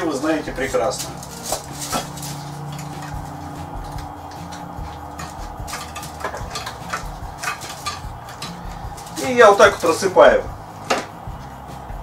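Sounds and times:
low hum: 1.2 - 9.6.

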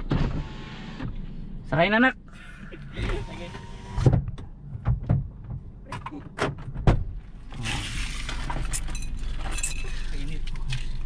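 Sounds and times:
steady outdoor noise: 0.0 - 11.0
car door knocks and latch clicks: 4.0 - 7.2.

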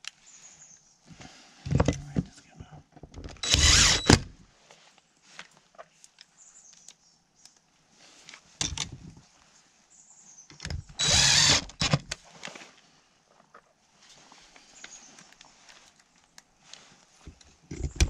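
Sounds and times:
cordless drill driving screws: 3.4 - 4.3, 10.7 - 12.1.

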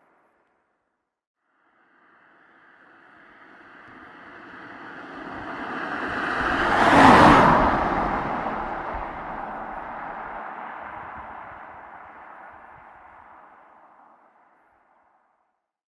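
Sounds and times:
vehicle passing by: 2.2 - 14.4.

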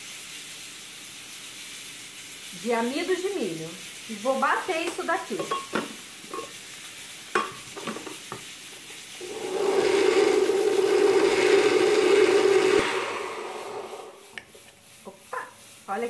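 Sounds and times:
blender motor running: 9.2 - 14.4.

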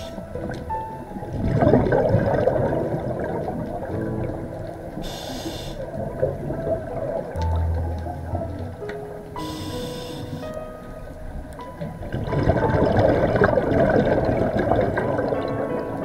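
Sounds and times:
low steady hum: 0.0 - 15.6
exhaled bubbles gurgling: 0.0 - 16.0
regulator inhalation hiss: 5.0 - 5.8, 9.4 - 10.5.

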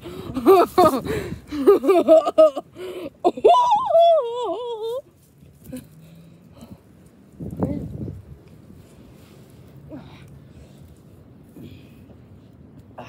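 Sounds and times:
boys laughing: 0.0 - 5.1.

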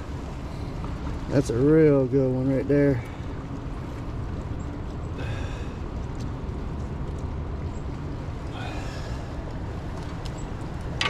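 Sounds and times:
low outdoor rumble: 0.0 - 11.0
faint breathy sounds: 5.2 - 5.8, 8.5 - 9.4.

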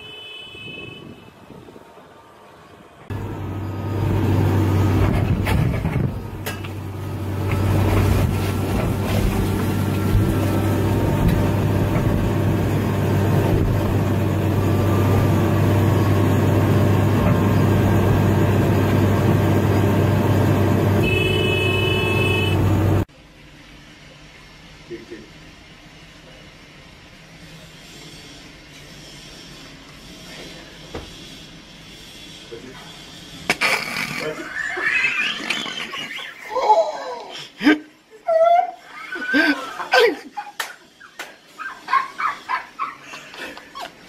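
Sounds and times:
diesel engine running: 2.0 - 24.8.

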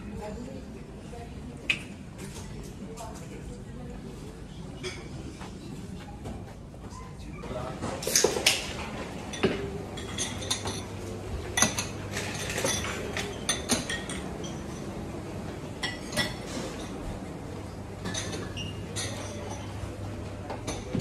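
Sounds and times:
dishes and cutlery clinking: 4.8 - 5.6, 6.2 - 15.1, 15.7 - 21.0.

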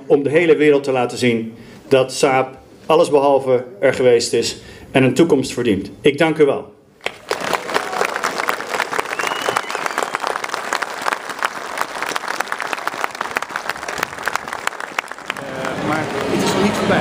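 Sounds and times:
crowd applauding: 7.0 - 17.0.

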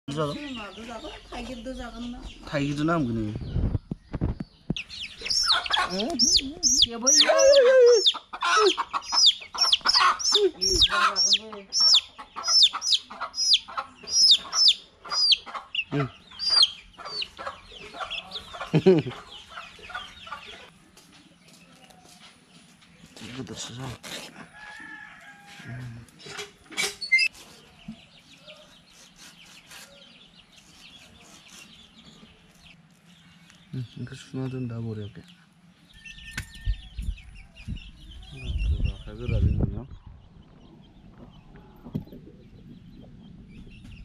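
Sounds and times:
chickens clucking: 0.1 - 24.8, 25.8 - 44.0
chick peeping loudly: 3.5 - 20.7
hen clucking: 4.7 - 20.8
knife scraping fish scales: 28.9 - 31.8.

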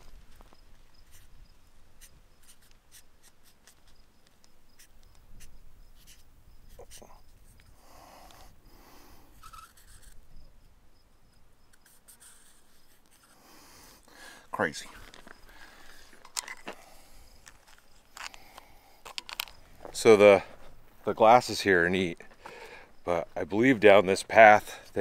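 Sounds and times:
marker scratching on metal: 1.0 - 1.3, 2.0 - 4.0, 4.8 - 7.7, 9.4 - 10.2, 11.7 - 13.6.

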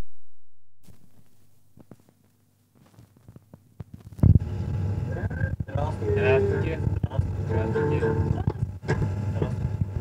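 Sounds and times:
low hum: 4.0 - 10.0.

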